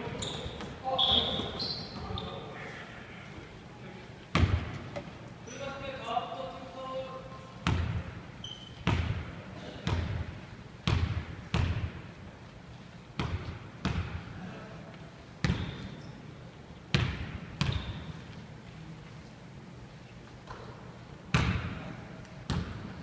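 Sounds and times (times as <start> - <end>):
basketball bouncing on wooden floor: 7.6 - 8.1, 8.8 - 10.2, 10.8 - 12.0, 13.2 - 14.2.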